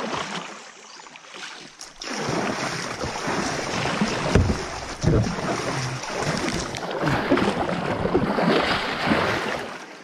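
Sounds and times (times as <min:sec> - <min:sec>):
water lapping around kayak: 0:00.0 - 0:10.0
dull thump: 0:03.0 - 0:05.4.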